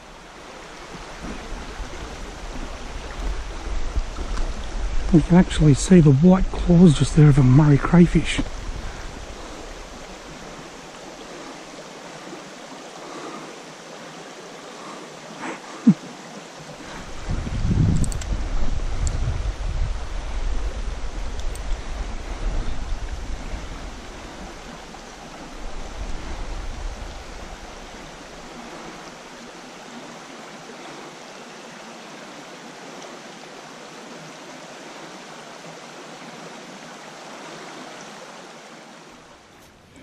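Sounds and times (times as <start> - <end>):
creek water rushing: 0.0 - 40.0
low microphone rumble: 16.9 - 24.7.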